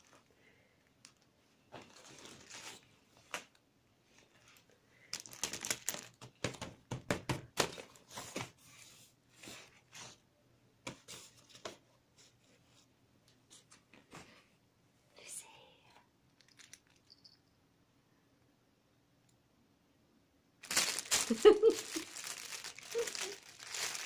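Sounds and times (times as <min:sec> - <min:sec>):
fabric tunnel rustling and crackling: 0:20.6 - 0:24.0.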